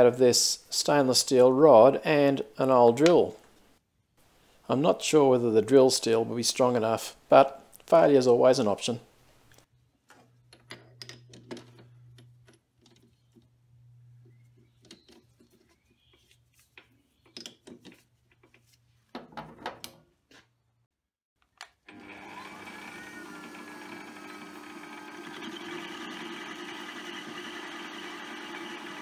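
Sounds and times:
lathe whining: 0:21.9 - 0:29.0.

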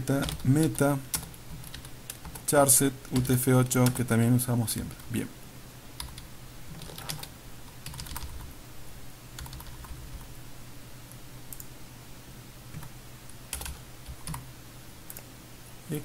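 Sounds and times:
low steady hum: 0:00.0 - 0:16.0
computer keyboard keystrokes: 0:00.2 - 0:00.5, 0:01.1 - 0:02.5, 0:06.0 - 0:08.4, 0:09.4 - 0:10.0, 0:13.5 - 0:14.4.

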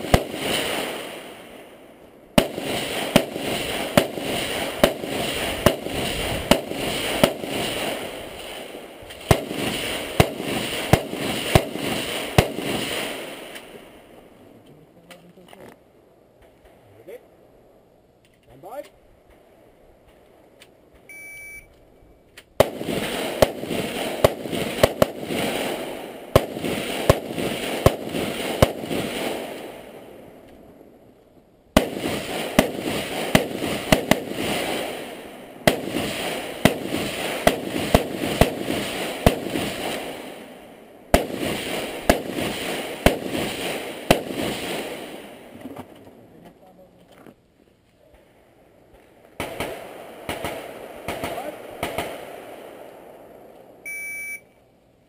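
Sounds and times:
rapid rifle fire: 0:00.0 - 0:01.2, 0:02.4 - 0:13.6, 0:22.6 - 0:29.7, 0:31.8 - 0:40.4, 0:41.1 - 0:45.2, 0:49.4 - 0:52.6
shot timer beep: 0:21.1 - 0:21.7, 0:53.8 - 0:54.6.

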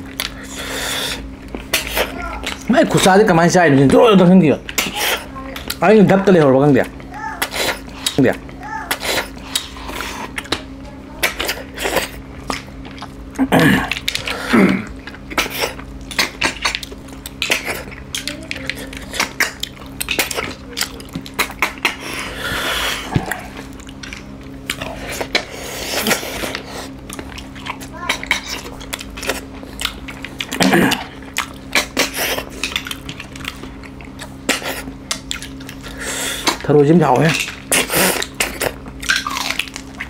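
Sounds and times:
mouth eating noises: 0:00.0 - 0:03.2, 0:03.8 - 0:40.0
steady low hum: 0:00.0 - 0:40.0.

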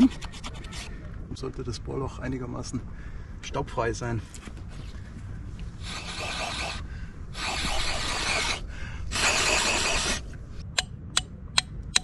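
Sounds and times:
rushes of air: 0:04.6 - 0:10.7.

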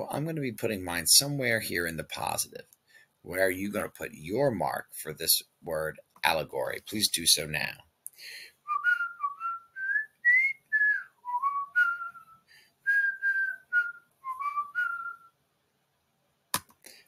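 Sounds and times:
person whistling a tune: 0:08.6 - 0:15.3.

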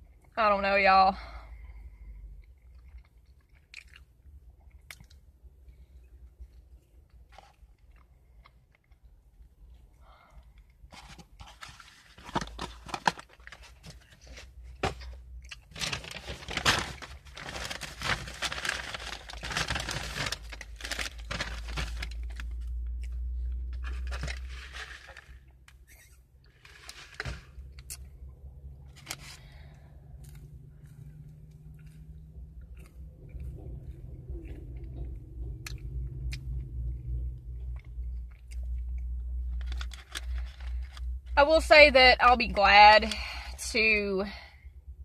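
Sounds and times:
paper packaging crinkling and tearing: 0:11.0 - 0:23.0, 0:23.7 - 0:26.0, 0:26.6 - 0:27.8, 0:39.5 - 0:41.4.

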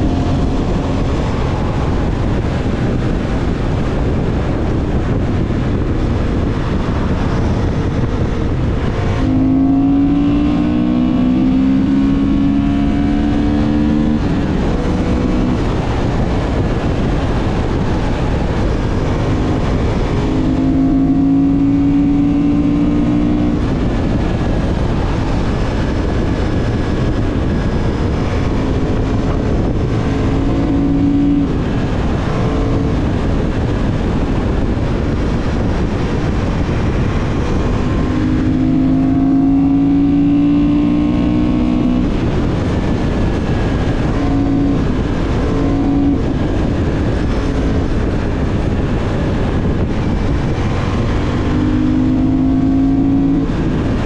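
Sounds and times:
motorcycle engine running: 0:00.0 - 0:54.0
wind and road noise: 0:00.0 - 0:54.0.

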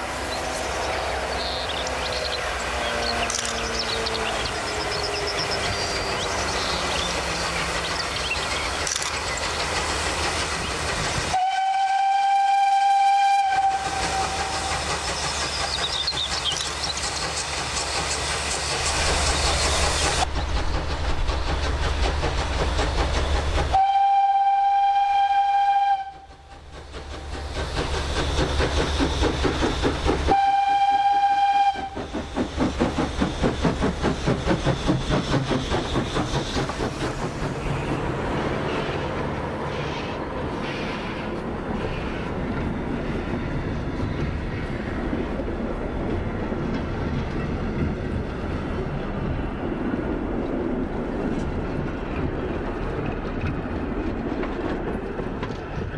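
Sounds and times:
steam locomotive chuffing: 0:00.0 - 0:55.9
steam whistle blasts: 0:01.4 - 0:05.5, 0:11.3 - 0:14.8, 0:23.7 - 0:26.3, 0:30.3 - 0:32.0.

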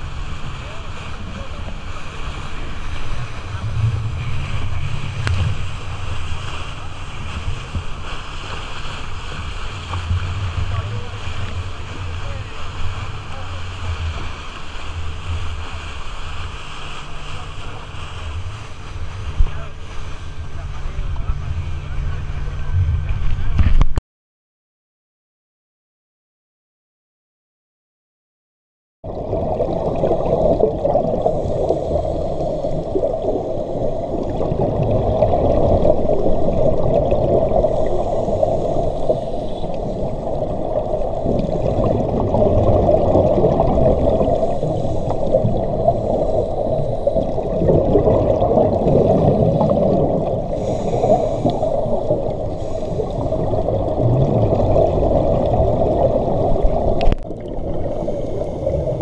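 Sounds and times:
rushing water: 0:00.0 - 0:23.8, 0:29.0 - 0:59.0
underwater regulator bubbling: 0:01.1 - 0:19.6, 0:29.0 - 0:59.0.

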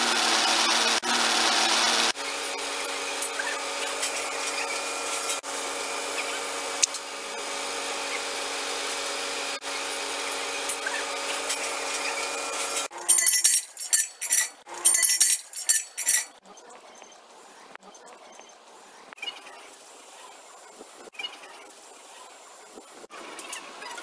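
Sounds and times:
metallic clinks and clatters: 0:13.0 - 0:16.4.

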